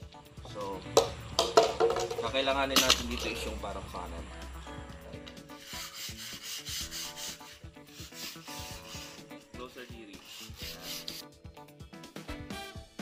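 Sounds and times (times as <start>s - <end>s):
sandpaper rubbing on wood: 5.4s - 11.3s.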